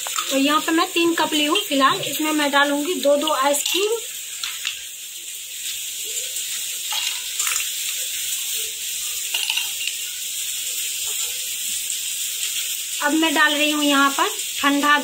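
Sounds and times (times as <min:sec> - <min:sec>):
ice cubes clinking into mugs: 0:03.2 - 0:04.8, 0:06.9 - 0:07.7, 0:09.3 - 0:10.0.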